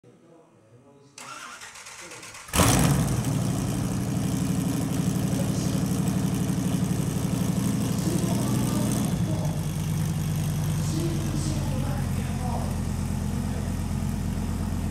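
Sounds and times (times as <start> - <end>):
motorcycle engine idling loudly: 2.6 - 14.9.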